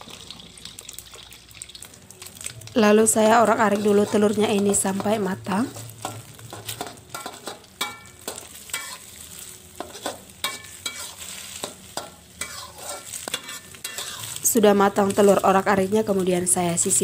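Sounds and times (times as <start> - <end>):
eggs sizzling in oil: 0.0 - 17.0
metal spatula scraping a wok: 3.5 - 15.5.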